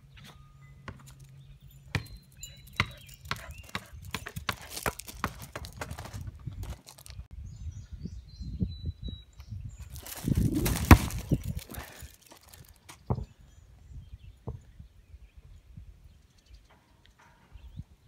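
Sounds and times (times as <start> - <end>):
footsteps crunching on gravel: 2.9 - 7.3, 9.8 - 13.1.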